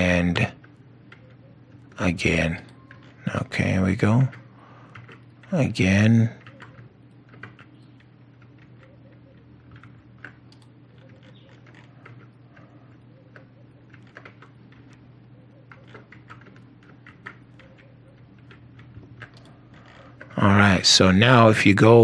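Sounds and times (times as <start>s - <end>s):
faint steady hum: 0.0s - 22.0s
keyboard and mouse clicking: 0.6s - 2.0s, 2.7s - 3.2s, 4.3s - 5.5s, 6.4s - 20.4s.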